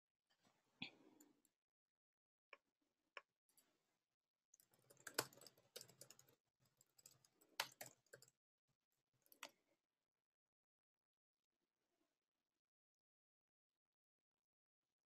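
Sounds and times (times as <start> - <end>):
faint keyboard typing: 4.6 - 8.4.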